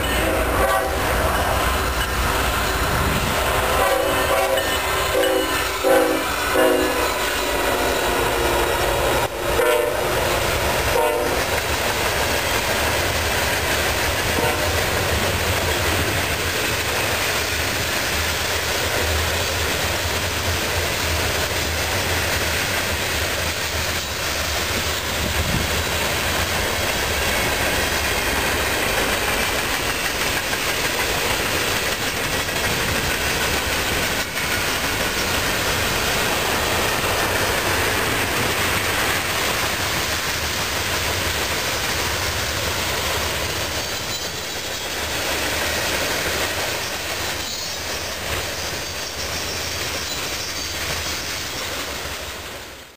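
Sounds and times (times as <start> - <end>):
train horn chord: 0.1 - 1.3, 3.6 - 10.2, 10.8 - 11.5, 14.4 - 14.8
train wheels clattering over rail joints: 10.1 - 52.2.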